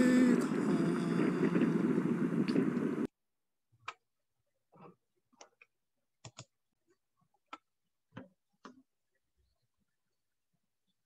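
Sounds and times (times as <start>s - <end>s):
computer mouse clicks: 4.8s - 6.5s.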